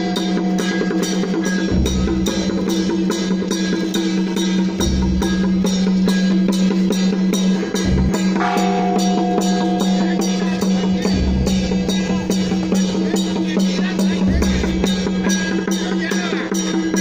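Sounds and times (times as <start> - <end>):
drums and percussion beating: 0.0 - 17.0
steady held low tone: 7.8 - 15.3
higher held note: 8.4 - 13.9.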